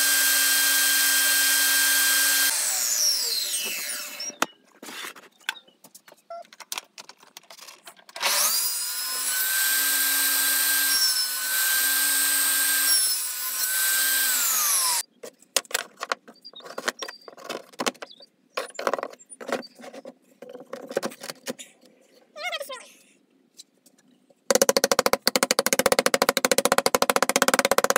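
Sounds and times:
table saw whining: 0.0 - 4.6, 8.2 - 15.0.

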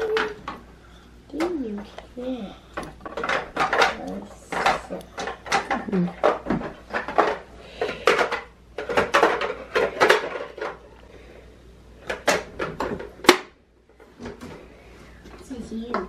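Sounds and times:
plastic tools clattering on wood: 2.8 - 11.0, 12.0 - 14.6.

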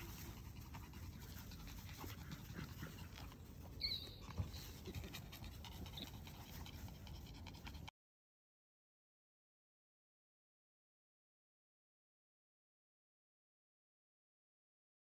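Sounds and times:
puppies panting and scuffling: 0.0 - 7.9
puppy yipping: 2.5 - 6.1.

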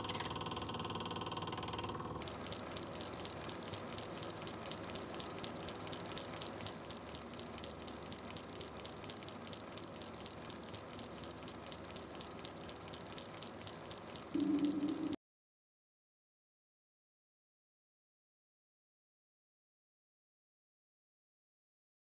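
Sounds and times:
film projector running: 0.0 - 15.2
projector mechanism clicking: 0.0 - 15.2.

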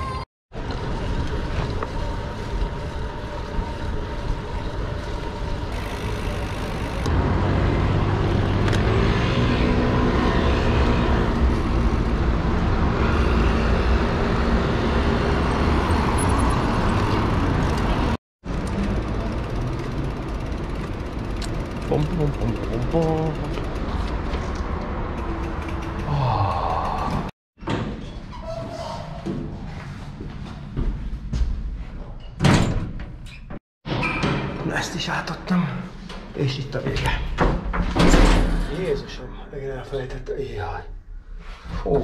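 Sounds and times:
vehicles driving past: 0.6 - 27.3.

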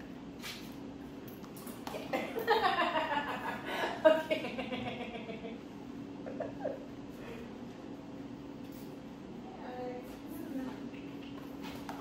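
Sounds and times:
woman laughing: 2.0 - 5.6, 6.2 - 6.9.

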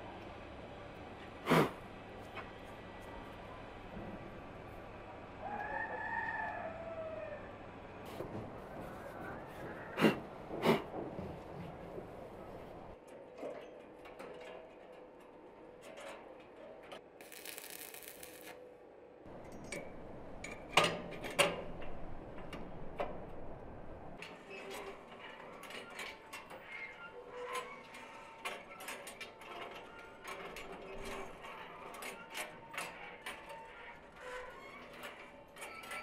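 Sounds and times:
welding arc hiss: 17.2 - 18.6.

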